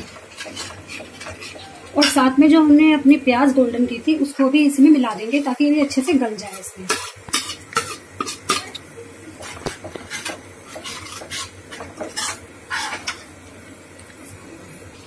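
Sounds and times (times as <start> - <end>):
metal spoon scraping a pan: 0.0 - 2.4, 5.1 - 8.8, 9.4 - 13.4
curry frying: 0.0 - 15.0.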